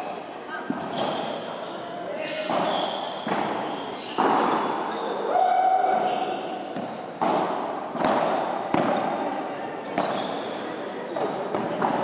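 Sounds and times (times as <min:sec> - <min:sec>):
ball hits echoing off walls: 0:02.4 - 0:04.8, 0:06.7 - 0:09.2, 0:11.2 - 0:12.0.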